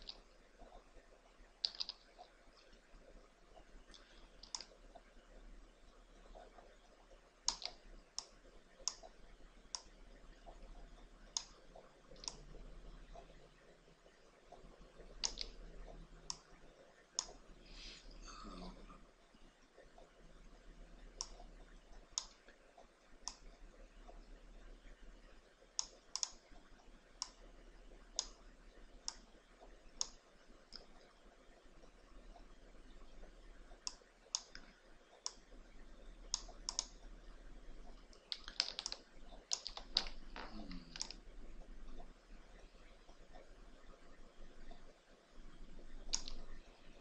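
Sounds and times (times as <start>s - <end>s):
computer mouse clicks: 0.0s - 0.8s, 1.6s - 2.8s, 3.9s - 5.0s, 7.5s - 12.5s, 14.5s - 15.7s, 16.3s - 16.5s, 17.2s - 17.4s, 21.1s - 22.6s, 23.2s - 24.3s, 25.8s - 27.4s, 28.2s - 28.4s, 29.0s - 31.1s, 33.7s - 35.5s, 36.2s - 37.1s, 37.8s - 41.2s, 45.6s - 47.0s.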